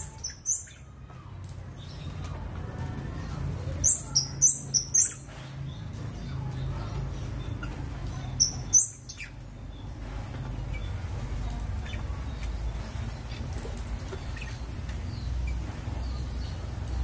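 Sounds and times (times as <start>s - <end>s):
bird chirps: 3.8s - 10.0s.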